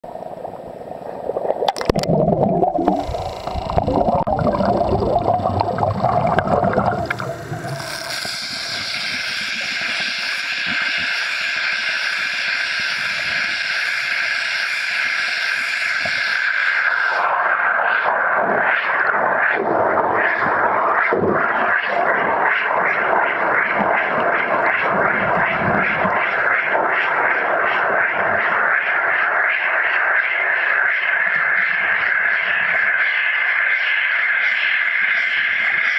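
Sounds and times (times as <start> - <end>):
water splashing: 0.0 - 10.0
underwater rushing hiss: 0.2 - 35.9.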